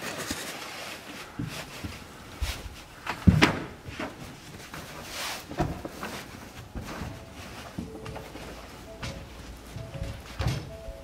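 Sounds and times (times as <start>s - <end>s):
fabric rustling: 0.0s - 11.0s
knocks and thumps: 9.8s - 10.9s.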